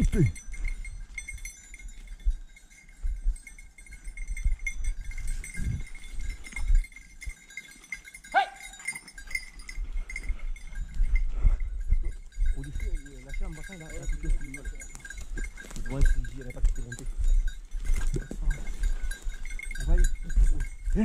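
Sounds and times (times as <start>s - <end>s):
dog baying in the distance: 8.3s - 8.9s.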